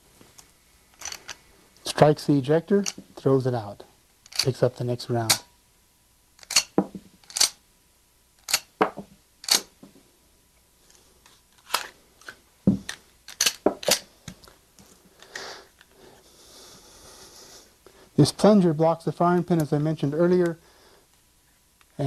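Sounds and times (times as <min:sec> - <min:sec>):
pistol slide metallic clicks: 0:06.4 - 0:07.6, 0:08.4 - 0:08.7, 0:09.4 - 0:09.7.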